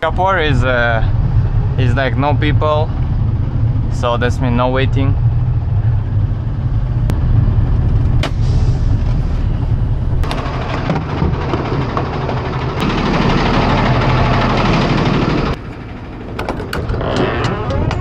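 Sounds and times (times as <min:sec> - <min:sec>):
vehicle engine and road rumble: 0:00.0 - 0:18.0
sharp clicks and rattles: 0:10.2 - 0:18.0.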